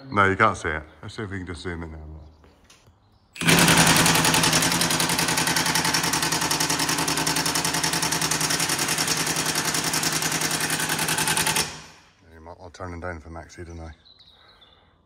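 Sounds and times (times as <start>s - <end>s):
impact wrench rattling: 3.4s - 12.1s.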